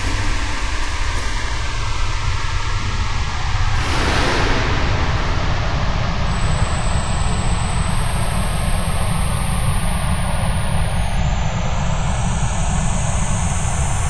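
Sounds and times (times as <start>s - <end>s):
loud low rumble: 3.1s - 10.4s.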